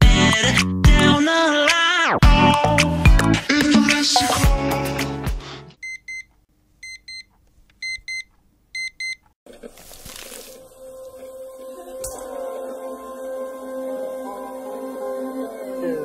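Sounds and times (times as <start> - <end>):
background music: 0.0 - 5.8, 10.5 - 16.0.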